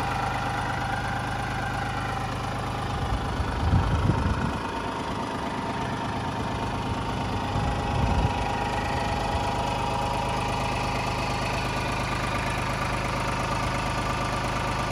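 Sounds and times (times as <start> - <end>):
tractor engine idling: 0.0 - 14.9
uneven low rumbling: 2.9 - 9.6.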